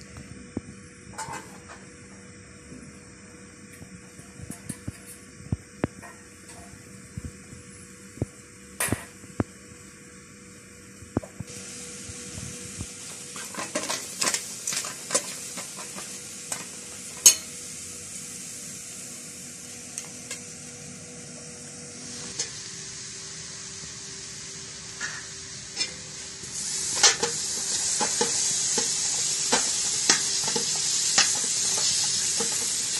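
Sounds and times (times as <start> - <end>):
mushrooms sizzling in a pot: 0.0 - 32.9
fork clinking and scraping pot: 17.2 - 17.5.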